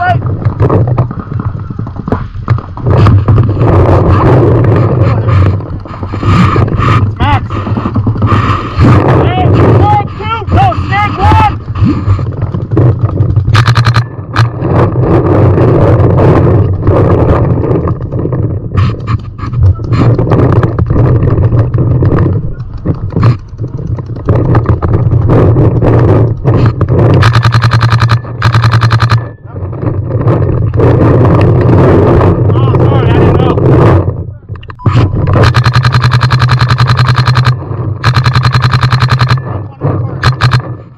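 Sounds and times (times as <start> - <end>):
wind rumble on microphone: 0.0 - 40.9
paintball markers popping: 15.8 - 29.3.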